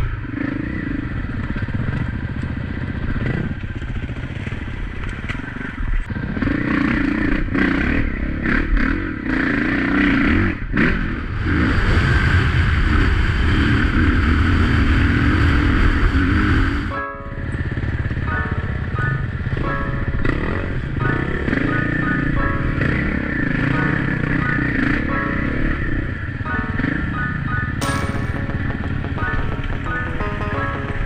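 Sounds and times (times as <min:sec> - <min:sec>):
melodic music: 0:16.9 - 0:17.6, 0:18.2 - 0:20.2, 0:26.4 - 0:31.0.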